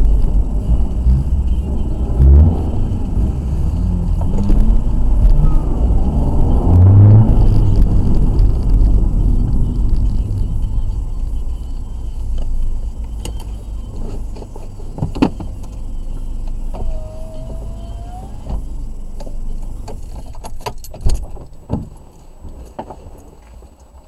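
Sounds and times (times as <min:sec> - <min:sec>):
car engine and road rumble: 0:00.0 - 0:24.0
short squeak: 0:16.7 - 0:18.7.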